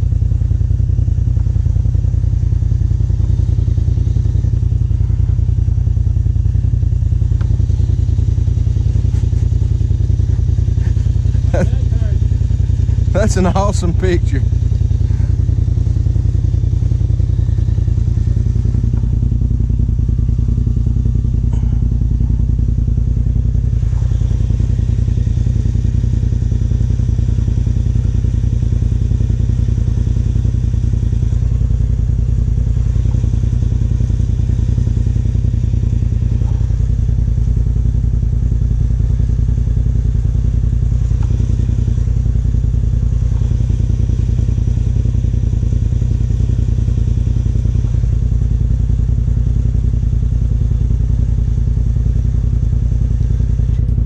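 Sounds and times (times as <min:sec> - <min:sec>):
utility vehicle engine idling: 0:00.0 - 0:54.0.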